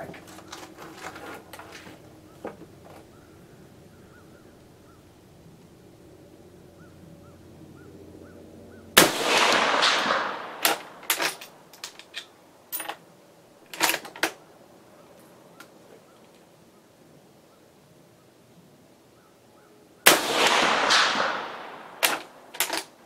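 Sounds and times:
rifle shot: 9.0 - 11.6, 20.1 - 23.0
rifle bolt clicks and clacks: 9.8 - 13.0, 13.7 - 14.4, 22.0 - 22.9.

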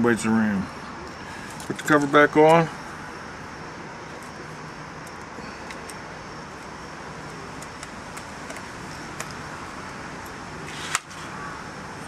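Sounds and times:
traffic noise: 0.0 - 12.0.

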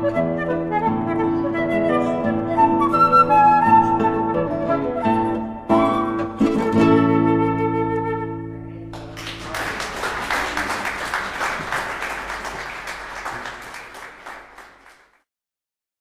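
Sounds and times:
flute and guitar chord: 0.0 - 8.9
audience applauding: 9.0 - 15.2.

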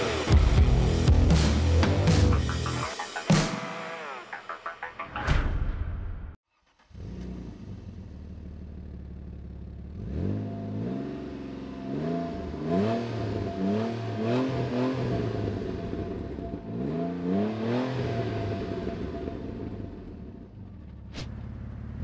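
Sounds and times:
car engine idling and revving: 6.6 - 22.0.

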